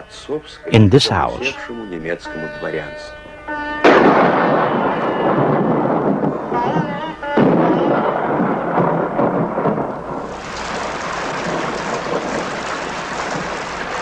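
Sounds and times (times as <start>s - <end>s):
rain falling: 9.3s - 14.0s.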